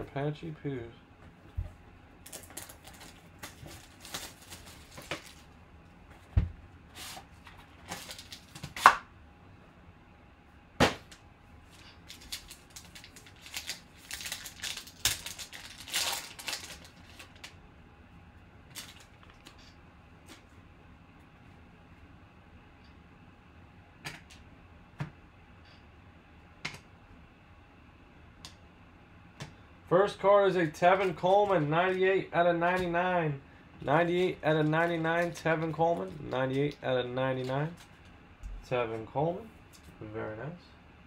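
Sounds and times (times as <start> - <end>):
foil wrapper crinkling: 2.2 - 5.6, 7.6 - 8.8, 11.8 - 17.6, 18.7 - 19.6.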